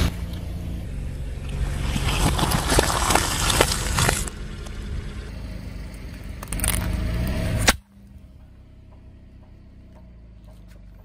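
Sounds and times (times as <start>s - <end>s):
tyre rolling over asphalt: 1.1s - 5.2s
fruit crunching and squashing: 1.3s - 4.8s, 5.9s - 7.9s
sharp crack: 6.3s - 7.9s.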